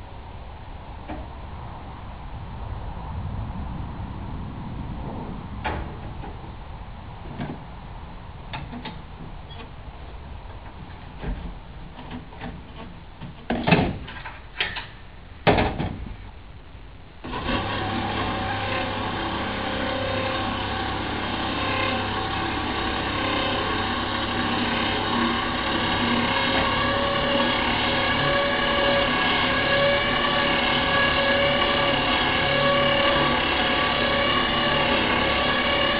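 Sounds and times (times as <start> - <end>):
metal knocks and clanks: 10.7 - 16.1
electric motor humming: 17.2 - 35.9.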